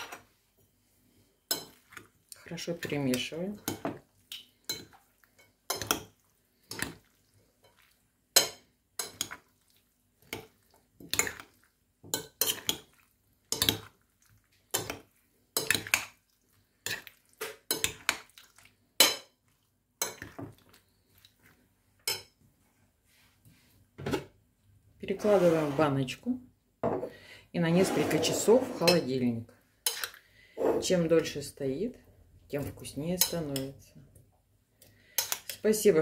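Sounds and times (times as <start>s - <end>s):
metal spoons clinking on ceramic bowl: 2.8s - 6.1s, 8.4s - 9.4s.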